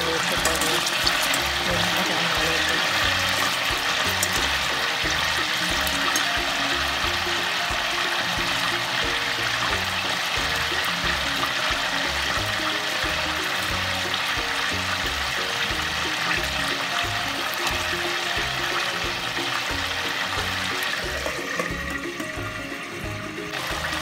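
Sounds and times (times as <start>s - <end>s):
background music with low notes: 0.0s - 24.0s
chicken sizzling in oil: 0.0s - 24.0s.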